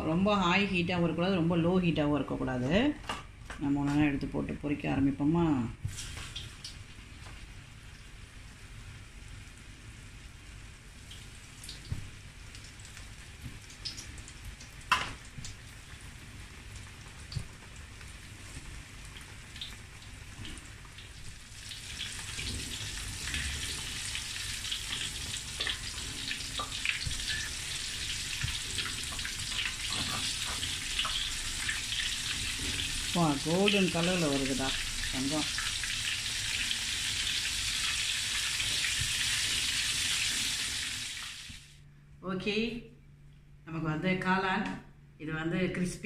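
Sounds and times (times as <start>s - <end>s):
oil sizzling and crackling: 5.8s - 41.8s.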